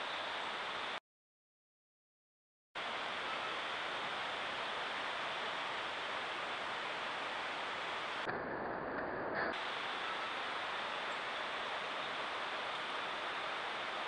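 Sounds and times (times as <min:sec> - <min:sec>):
faint outdoor ambience: 0:00.0 - 0:01.0, 0:02.8 - 0:14.0
steady microphone hiss: 0:00.0 - 0:01.0, 0:02.8 - 0:08.3, 0:09.6 - 0:14.0.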